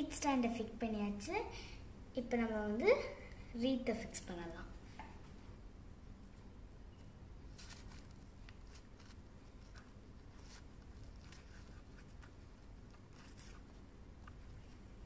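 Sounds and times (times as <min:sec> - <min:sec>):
low steady hum: 0:00.0 - 0:15.0
rustling and scraping: 0:07.5 - 0:14.9.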